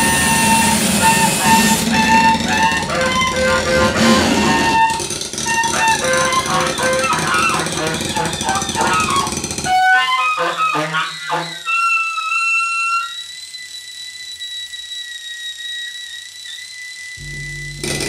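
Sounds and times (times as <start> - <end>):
pitched electronic blips: 0.0 - 9.3, 17.2 - 18.0
dense noisy music texture: 0.0 - 9.4, 17.2 - 18.0
thin high whistling tones: 0.0 - 10.4, 11.0 - 17.8.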